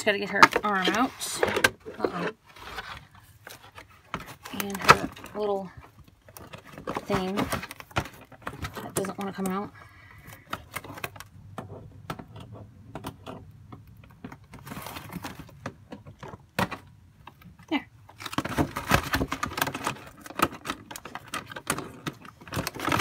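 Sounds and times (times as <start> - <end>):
packaging clicks and rustles: 0.1 - 23.0.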